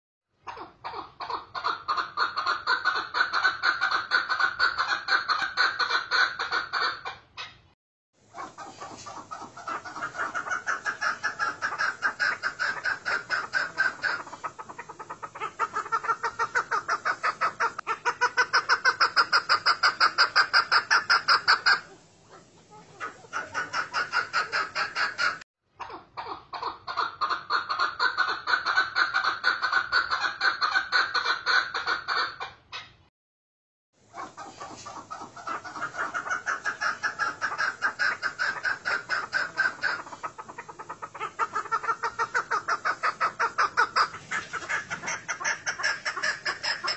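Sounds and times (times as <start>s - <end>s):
partridge clucking: 8.4s - 25.4s, 34.2s - 46.9s.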